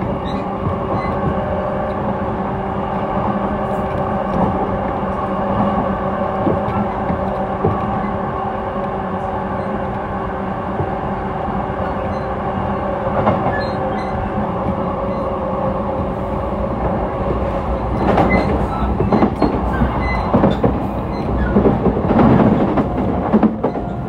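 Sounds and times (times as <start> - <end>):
train motor hum: 0.0 - 24.0
train rumble: 0.0 - 24.0
wheels clattering over rail joints: 17.9 - 24.0.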